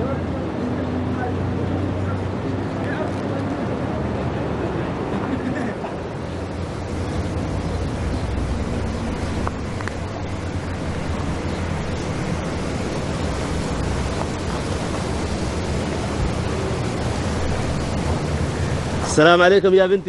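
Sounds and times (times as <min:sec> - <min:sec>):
rushing outdoor background noise: 0:00.0 - 0:20.0
low rumble: 0:05.2 - 0:19.2.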